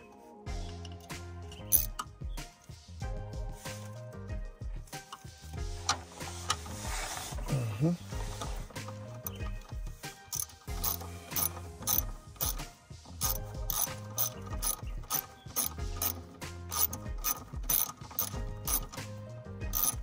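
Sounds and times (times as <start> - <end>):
ratchet wrench clicking: 0.8 - 2.1, 8.3 - 20.0.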